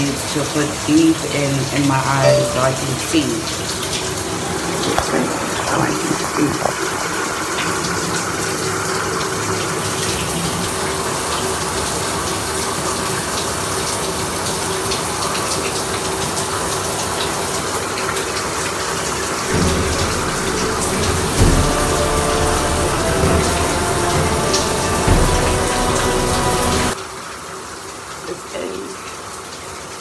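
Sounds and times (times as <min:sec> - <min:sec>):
water running from a tap: 0:00.0 - 0:27.0
low rumble: 0:19.5 - 0:27.0.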